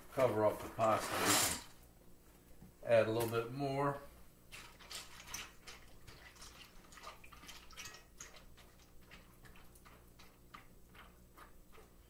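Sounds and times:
spatula stirring pasta in water: 0:04.6 - 0:12.0.

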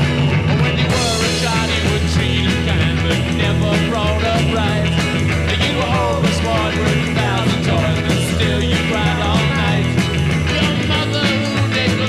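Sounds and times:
rock music: 0:00.0 - 0:12.0.

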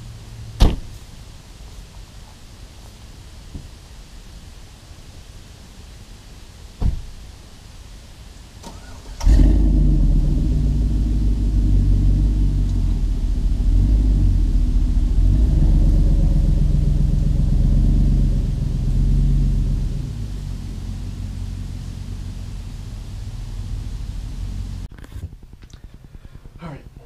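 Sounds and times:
car engine starting and rumbling: 0:08.5 - 0:26.8.

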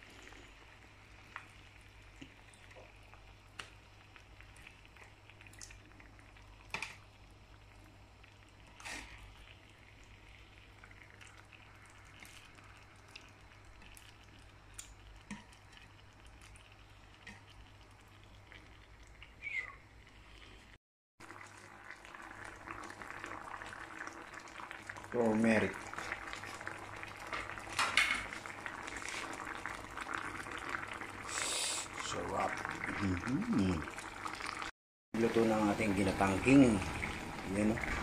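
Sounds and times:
sauce simmering in a frying pan: 0:00.0 - 0:38.0
soft pops and bubbling: 0:01.2 - 0:19.8.

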